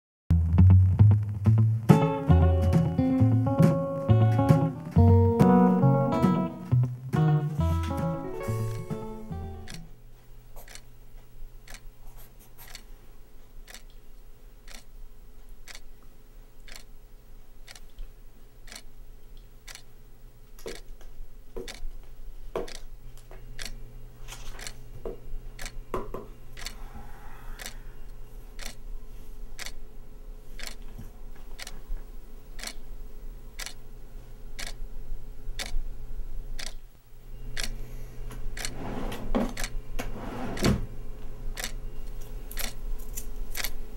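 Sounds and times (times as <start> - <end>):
wall clock ticking: 9.3 - 9.9, 14.7 - 14.9, 15.7 - 15.9, 16.7 - 16.9, 18.7 - 18.9, 26.6 - 26.8, 28.6 - 28.8, 30.6 - 30.8, 32.6 - 32.8, 33.6 - 33.8, 34.6 - 34.8, 36.6 - 36.8, 41.6 - 41.8.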